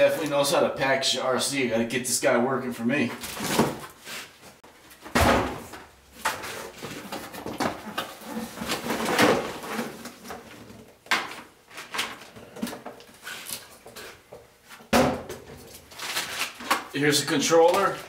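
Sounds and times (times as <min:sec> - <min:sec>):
plastic bags rustling: 0:15.4 - 0:18.0.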